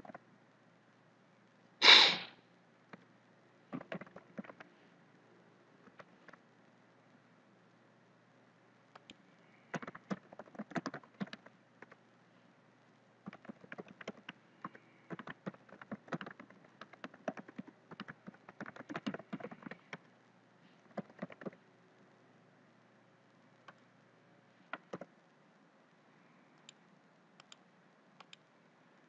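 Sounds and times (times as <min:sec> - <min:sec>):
keyboard typing: 0:03.7 - 0:04.7, 0:09.0 - 0:12.0, 0:13.2 - 0:20.1, 0:20.8 - 0:21.6, 0:24.7 - 0:25.1, 0:28.2 - 0:28.4.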